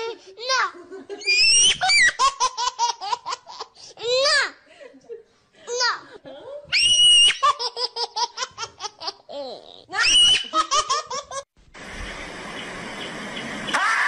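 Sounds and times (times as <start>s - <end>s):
high-pitched laughter: 0.7s - 3.5s, 6.8s - 11.5s
shrill squeal: 6.7s - 7.4s
rushing hiss: 11.7s - 13.8s.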